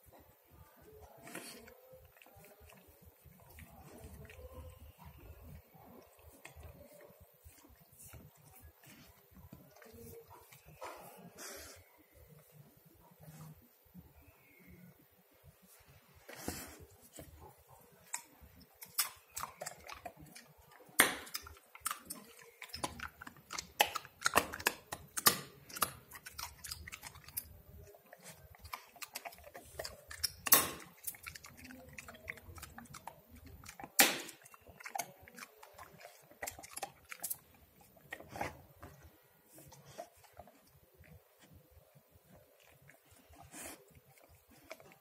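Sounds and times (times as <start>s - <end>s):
dog crunching on a bone: 17.3s - 41.6s, 42.2s - 45.0s.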